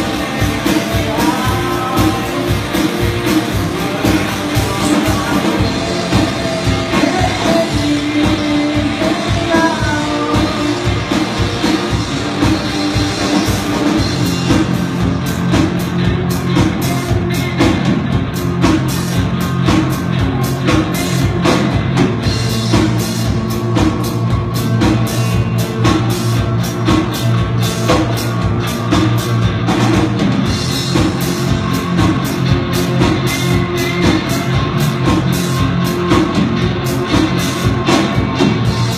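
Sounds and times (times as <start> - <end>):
person singing: 0.0 - 11.2
live rock band playing: 0.0 - 38.9.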